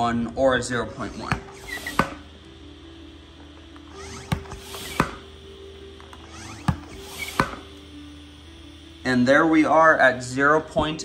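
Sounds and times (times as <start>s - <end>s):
hand pump air rush: 0.9s - 2.3s, 3.7s - 5.4s, 6.0s - 8.0s.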